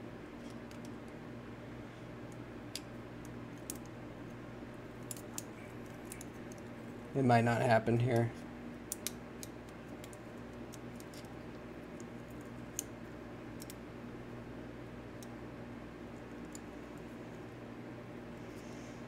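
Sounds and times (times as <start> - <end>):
steady low hum: 0.0 - 19.0
small metal parts clicking: 13.6 - 13.8.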